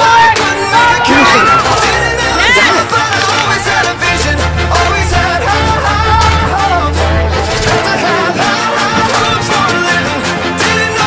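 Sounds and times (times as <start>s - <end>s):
background music: 0.0s - 11.0s
deep bass line: 0.4s - 10.5s.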